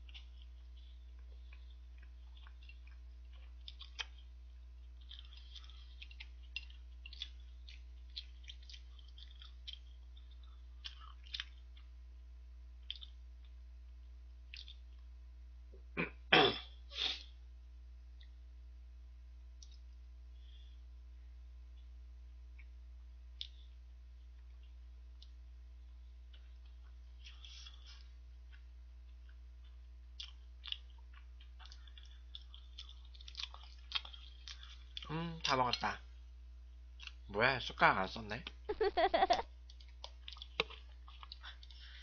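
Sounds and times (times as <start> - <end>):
chewing and mouth smacks: 0.0 - 12.0, 12.8 - 15.1, 19.6 - 20.0, 22.5 - 25.4, 26.2 - 35.9, 37.0 - 37.2, 39.5 - 42.0.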